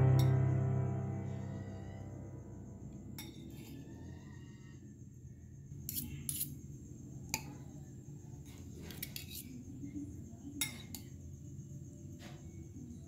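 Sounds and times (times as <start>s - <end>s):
steady low hum: 0.0s - 3.4s.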